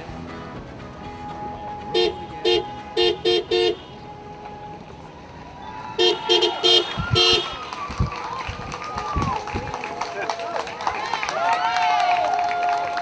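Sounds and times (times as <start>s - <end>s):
vehicle horn beeps: 1.9s - 4.2s, 6.0s - 7.6s.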